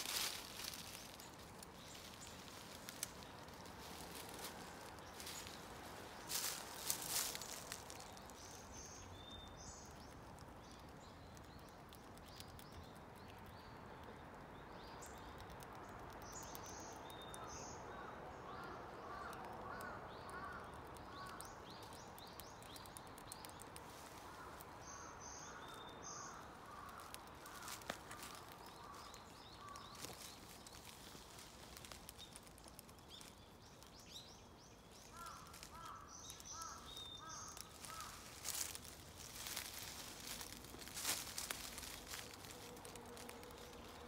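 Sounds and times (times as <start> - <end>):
dry leaves rustling: 0.0 - 12.7, 22.6 - 44.0.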